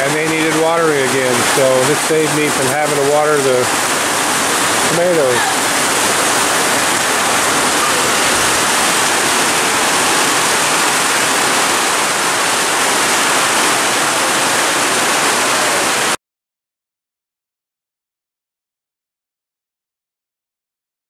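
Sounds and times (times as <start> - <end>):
heavy rain pouring: 0.0 - 16.2.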